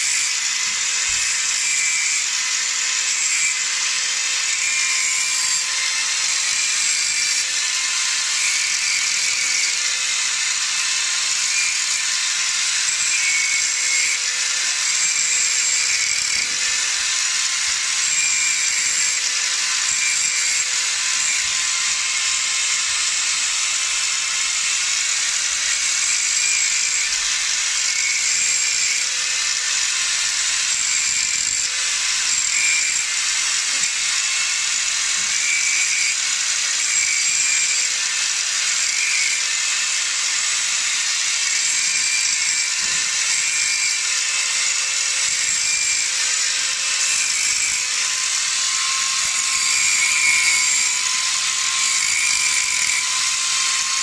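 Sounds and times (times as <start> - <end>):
angle grinder whine: 0.0 - 54.0.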